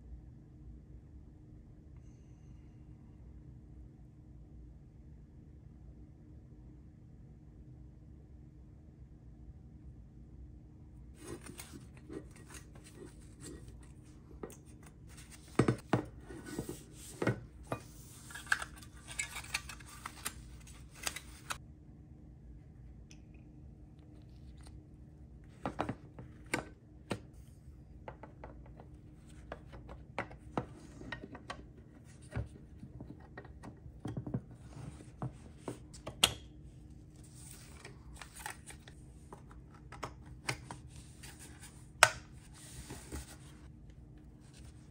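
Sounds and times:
soft rubbing and scraping: 11.2s - 21.6s.

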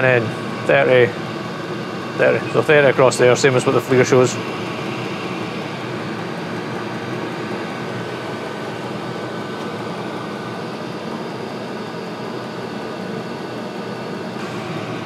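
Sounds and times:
air heater whirring hum: 0.0s - 15.0s
faint high whine: 0.0s - 15.0s.

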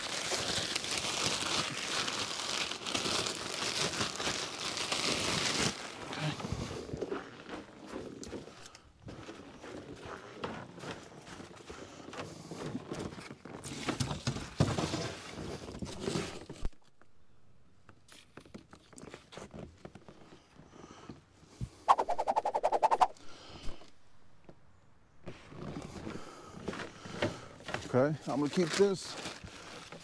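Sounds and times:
footsteps on snowy wooden deck: 6.4s - 13.9s, 25.2s - 27.9s
zipper zipping: 21.9s - 23.1s.

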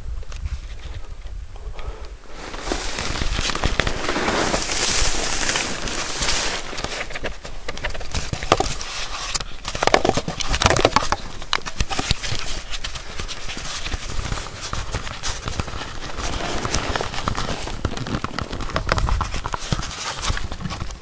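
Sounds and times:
footsteps through dry grass: 2.2s - 8.2s.

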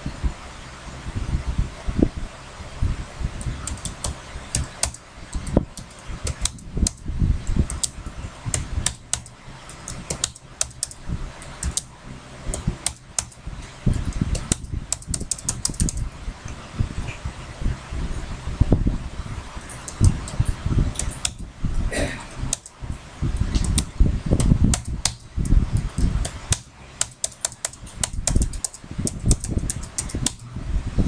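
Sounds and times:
keyboard key clicks: 3.4s - 7.0s, 7.7s - 11.0s, 11.6s - 11.9s, 14.1s - 16.0s, 23.5s - 25.2s, 25.9s - 30.4s.

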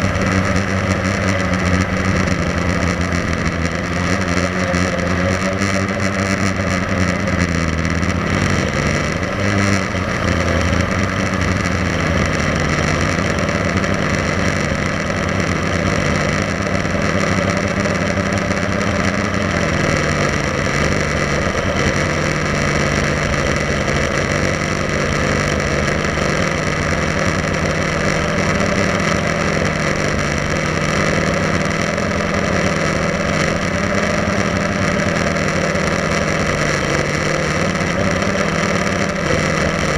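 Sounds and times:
quadcopter propellers buzzing: 0.0s - 39.9s.

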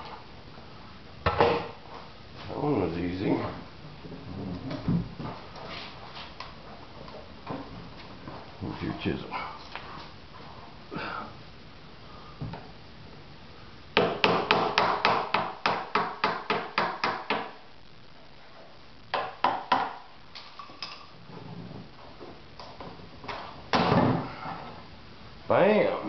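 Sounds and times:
chisel tapping fiberglass: 14.0s - 17.5s.

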